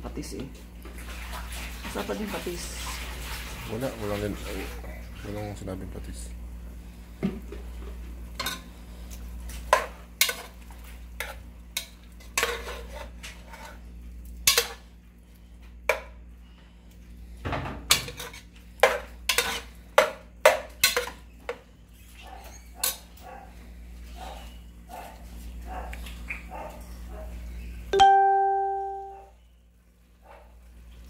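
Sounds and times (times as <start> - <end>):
low steady hum: 0.0 - 31.0
metal spoon scraping a pot: 11.2 - 13.8, 17.9 - 19.8.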